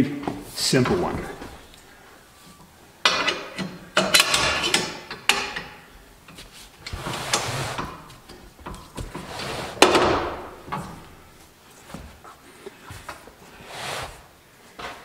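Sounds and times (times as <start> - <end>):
tire scraping on carpet: 6.4 - 8.2, 8.8 - 9.8, 13.5 - 15.0
heavy tire thud: 9.8 - 11.0.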